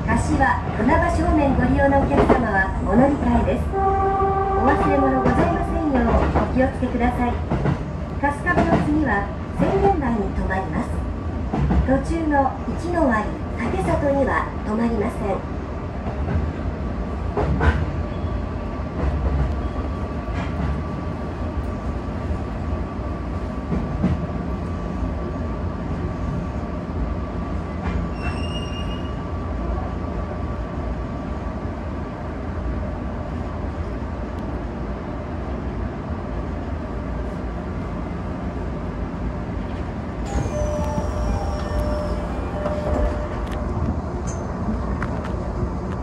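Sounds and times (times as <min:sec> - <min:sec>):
brief high tone: 0:40.3 - 0:43.4.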